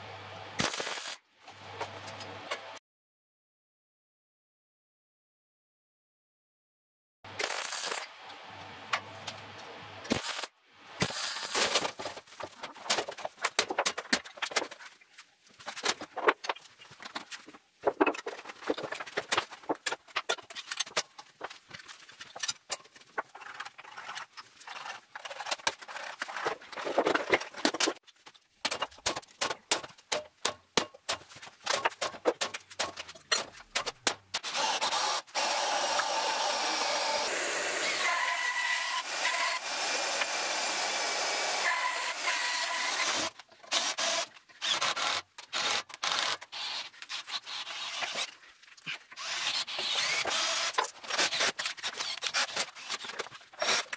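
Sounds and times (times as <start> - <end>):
cordless drill running: 34.4 - 46.8, 49.2 - 52.5.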